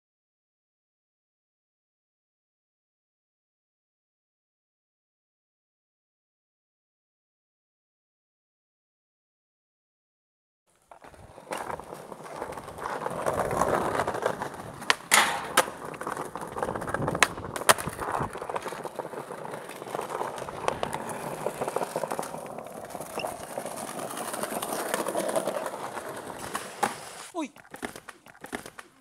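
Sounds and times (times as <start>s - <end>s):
skateboard wheels rolling on tiles: 10.7s - 29.0s
skateboard popping and landing: 10.8s - 29.0s.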